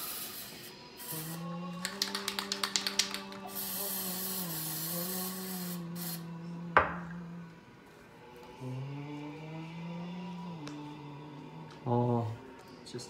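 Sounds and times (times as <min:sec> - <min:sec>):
mixing ball rattling in spray can: 0:00.0 - 0:06.2
aerosol spray hiss: 0:00.0 - 0:06.3
person humming: 0:01.0 - 0:07.5, 0:08.6 - 0:11.8.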